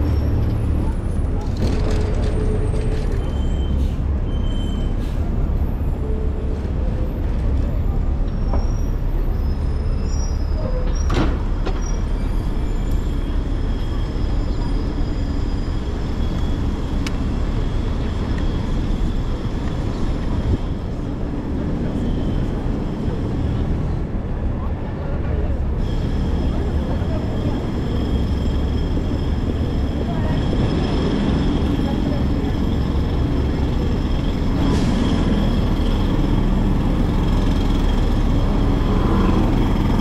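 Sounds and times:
traffic rumble: 0:00.0 - 0:40.0.

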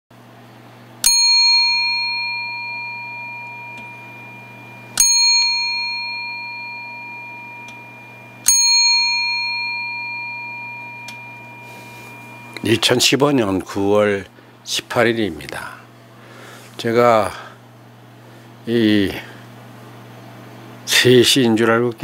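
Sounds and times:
bell ringing: 0:01.0 - 0:13.5.

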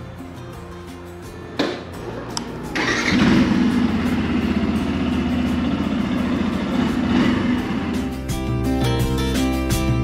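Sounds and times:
motorcycle engine idling: 0:02.8 - 0:08.4.

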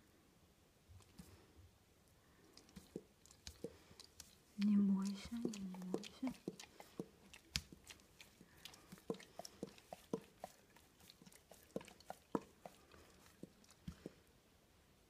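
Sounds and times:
dog licking and smacking: 0:02.4 - 0:14.2.

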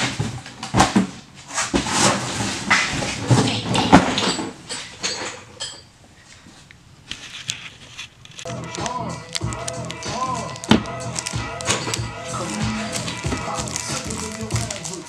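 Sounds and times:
cardboard and parts rustling: 0:00.0 - 0:05.5, 0:06.2 - 0:15.0.

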